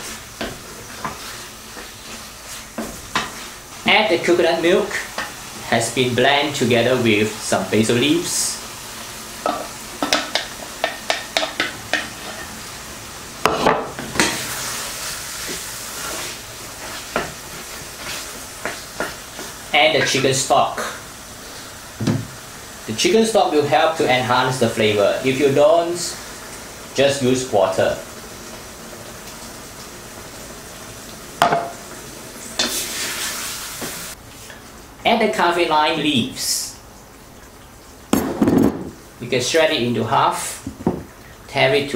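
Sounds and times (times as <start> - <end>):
wooden spatula stirring in pan: 0.0 - 5.7, 9.4 - 12.7, 13.4 - 22.4
simmering hiss: 0.0 - 13.4, 14.1 - 41.9
food sizzling: 0.0 - 41.9
wooden spatula scraping a pan: 13.5 - 20.2.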